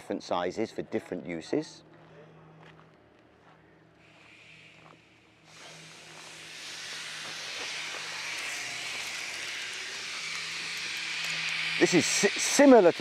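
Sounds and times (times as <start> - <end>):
steady hiss: 4.0 - 13.0.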